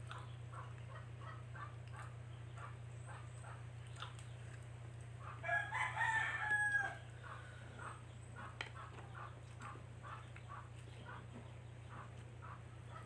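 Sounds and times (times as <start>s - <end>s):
rooster crowing: 5.2s - 7.4s.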